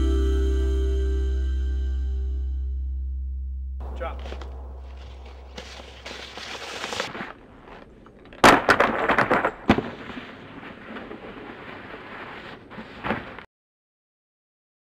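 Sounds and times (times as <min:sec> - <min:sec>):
snow scraping rush: 0:04.3 - 0:07.8, 0:09.7 - 0:13.5
snowboard slamming into snow: 0:08.4 - 0:13.5.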